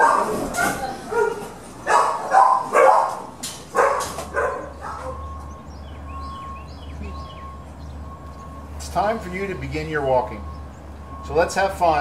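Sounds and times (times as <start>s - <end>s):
dogs barking: 0.0s - 5.5s
faint birds chirping: 0.8s - 12.0s.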